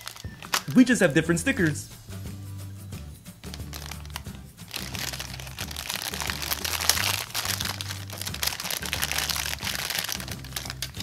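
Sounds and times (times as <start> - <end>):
plastic toy parts handled: 0.0 - 0.8, 3.5 - 11.0
plastic wrapping crinkling: 0.0 - 0.9, 3.5 - 11.0.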